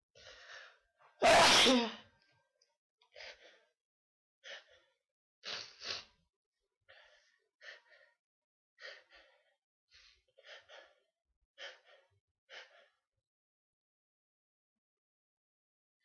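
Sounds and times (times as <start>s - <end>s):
person sneezing: 1.2s - 2.0s.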